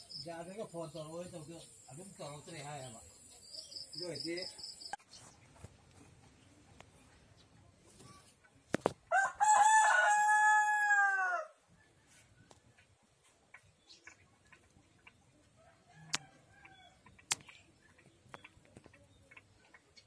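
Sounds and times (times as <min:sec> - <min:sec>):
rooster crowing: 0:09.1 - 0:11.6
sharp clicks: 0:17.2 - 0:17.6.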